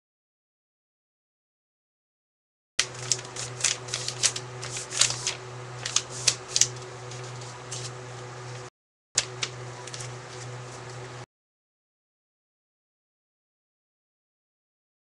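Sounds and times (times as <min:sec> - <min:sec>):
paper rustling and crinkling: 0:02.8 - 0:11.1
low electrical hum: 0:02.8 - 0:11.3.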